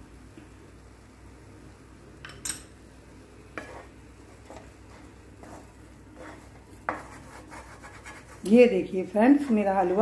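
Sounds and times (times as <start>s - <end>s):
spatula scraping pan bottom: 3.6s - 8.5s.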